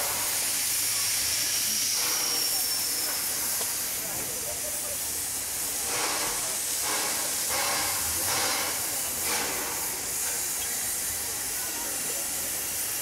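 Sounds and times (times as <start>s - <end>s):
steam locomotive hissing: 0.0s - 13.0s.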